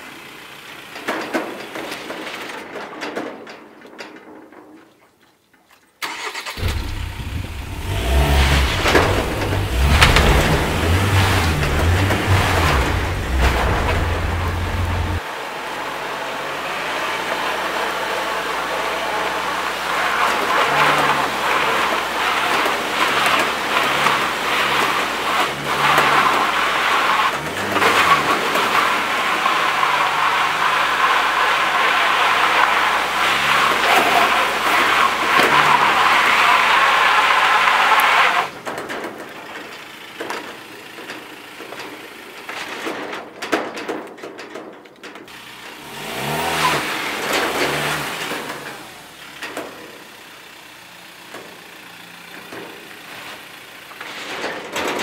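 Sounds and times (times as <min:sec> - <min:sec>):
diesel engine revving: 0:06.0 - 0:38.7, 0:45.3 - 0:54.3
tyres spinning in mud: 0:06.0 - 0:55.0.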